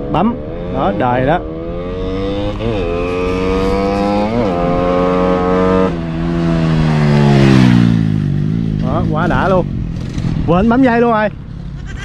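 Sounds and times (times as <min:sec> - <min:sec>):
motorcycle engine accelerating: 0:00.0 - 0:11.8.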